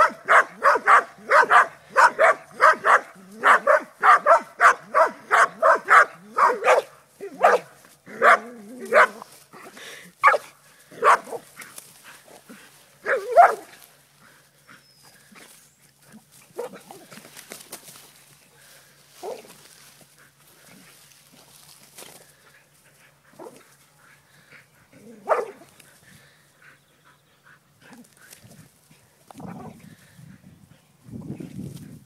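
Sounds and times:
dog barking: 0:00.0 - 0:09.2, 0:10.2 - 0:11.4, 0:13.0 - 0:13.7, 0:16.6 - 0:16.8, 0:25.2 - 0:25.6.

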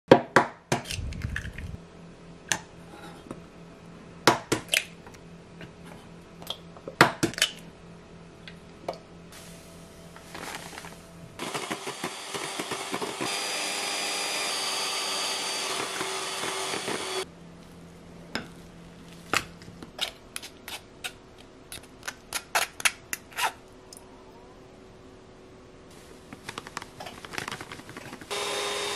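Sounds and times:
electric hand mixer whirring: 0:11.4 - 0:17.3, 0:28.3 - 0:28.9.

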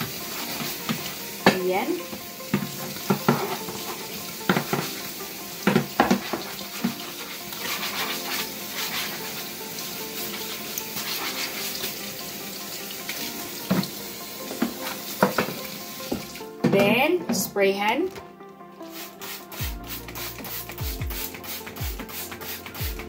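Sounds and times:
faucet running into sink: 0:00.0 - 0:16.6.

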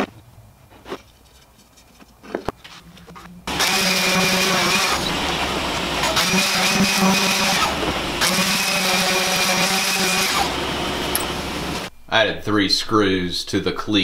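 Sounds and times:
orbit sander running: 0:03.5 - 0:11.9.

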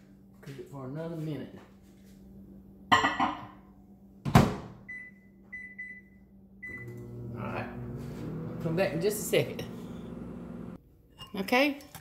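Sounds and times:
microwave oven humming: 0:04.8 - 0:10.8.

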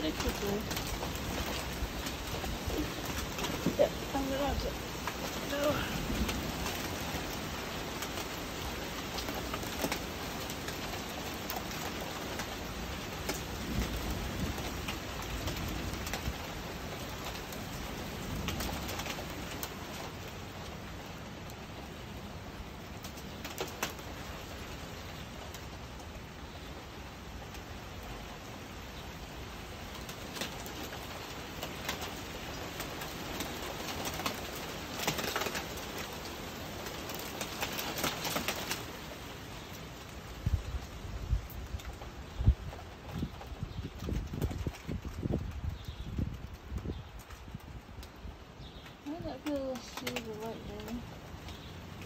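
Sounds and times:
low rumble of thunder: 0:00.0 - 0:10.4, 0:12.8 - 0:21.1, 0:40.3 - 0:52.0
steady rain falling: 0:00.0 - 0:52.0.

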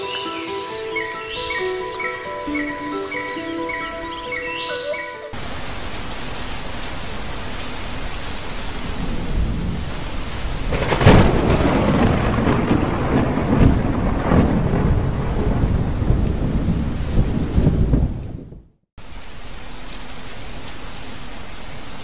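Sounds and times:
heavy rain falling: 0:05.3 - 0:22.0
rolling thunder rumbles: 0:08.5 - 0:18.8
sharp thunderclap: 0:08.8 - 0:18.7.

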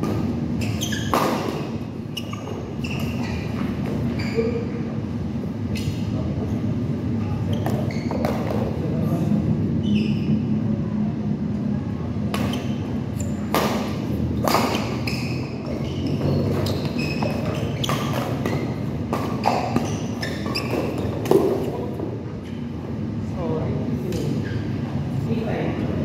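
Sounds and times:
shoes squeaking on court: 0:00.0 - 0:04.9, 0:05.6 - 0:08.8, 0:12.4 - 0:22.8, 0:24.2 - 0:24.9
low hum in hall: 0:00.0 - 0:26.0
rackets striking shuttlecock: 0:13.4 - 0:15.1.

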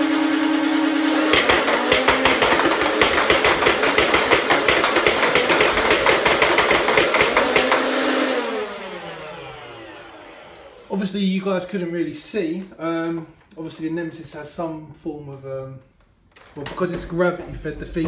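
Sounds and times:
motors humming and winding down: 0:05.2 - 0:11.1.

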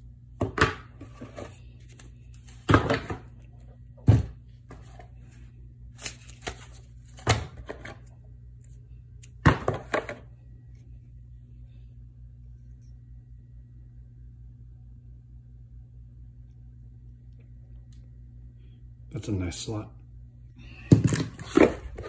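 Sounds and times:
low hum: 0:00.0 - 0:22.0
cardboard and paper rustling: 0:04.2 - 0:08.1.

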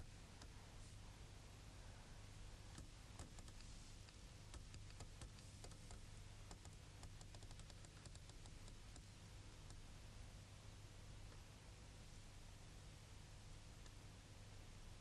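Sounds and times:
faint irregular clicks: 0:00.0 - 0:00.6, 0:02.7 - 0:09.9, 0:13.7 - 0:14.0
low steady hum: 0:00.0 - 0:15.0.

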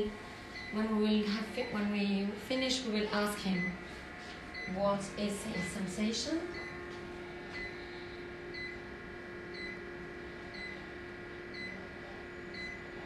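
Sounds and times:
steady hum: 0:00.0 - 0:13.0
medical device beeping: 0:03.2 - 0:03.8, 0:04.5 - 0:04.8, 0:05.4 - 0:06.8, 0:07.5 - 0:07.8, 0:08.5 - 0:08.8, 0:09.5 - 0:09.8, 0:10.5 - 0:10.8, 0:11.5 - 0:11.8, 0:12.5 - 0:12.9.

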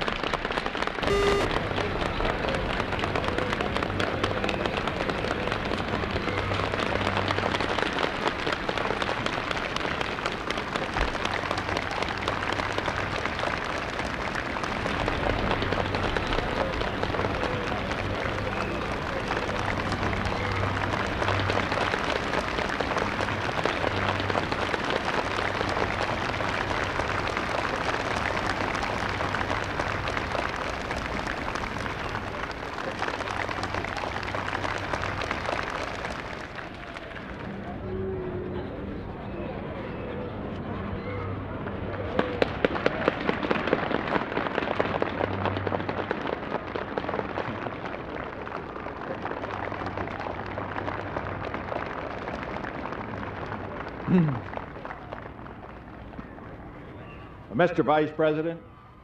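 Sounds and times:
crowd applauding: 0:00.0 - 0:40.1, 0:41.7 - 0:58.6
low steady hum: 0:01.0 - 0:01.9.

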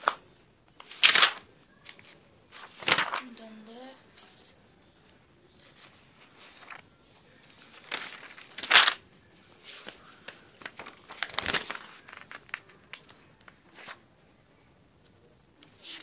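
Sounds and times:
notebook pages turning: 0:00.0 - 0:00.2, 0:00.8 - 0:03.3, 0:05.6 - 0:14.0.

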